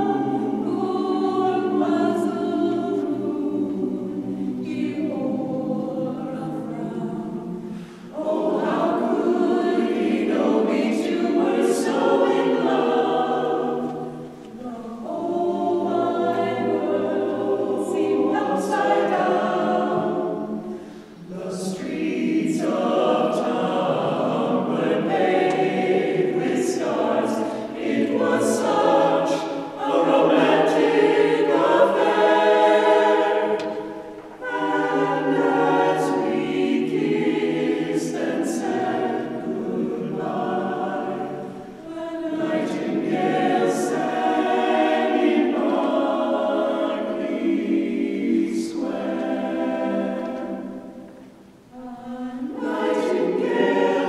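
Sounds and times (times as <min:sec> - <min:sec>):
a cappella vocal ensemble singing: 0:00.0 - 0:54.0
singers' breaths: 0:07.6 - 0:08.2, 0:20.6 - 0:21.3.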